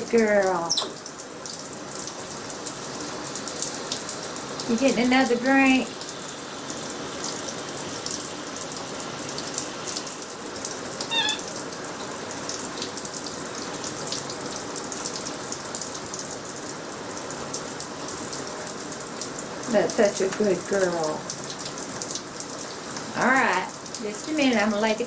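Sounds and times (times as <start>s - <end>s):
shower spray splashing: 10.9s - 11.8s
high squeak: 11.1s - 11.5s.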